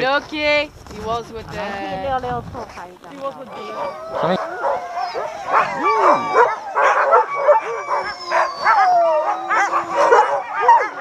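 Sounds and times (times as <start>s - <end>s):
dogs barking and yipping: 3.4s - 11.0s
dogs howling: 3.4s - 11.0s.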